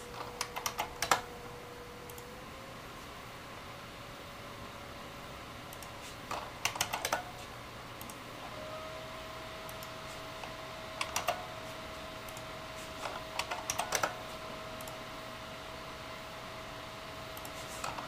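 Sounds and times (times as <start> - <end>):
cooling fan hum: 0.0 - 18.0
computer mouse clicks: 0.1 - 1.3, 2.1 - 2.3, 5.7 - 7.3, 8.0 - 8.2, 9.7 - 11.4, 12.2 - 14.2, 14.8 - 15.0, 17.4 - 18.0.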